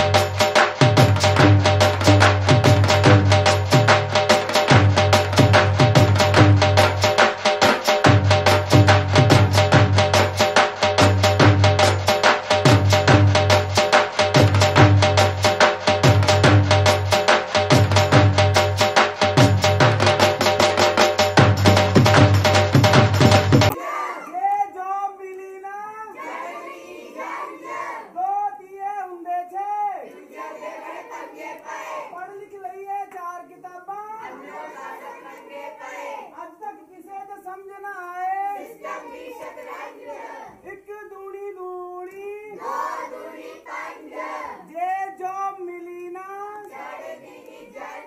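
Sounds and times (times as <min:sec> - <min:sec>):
children singing in unison: 0:26.2 - 0:28.1, 0:34.3 - 0:36.3, 0:38.8 - 0:40.6, 0:42.6 - 0:44.7, 0:46.7 - 0:48.0.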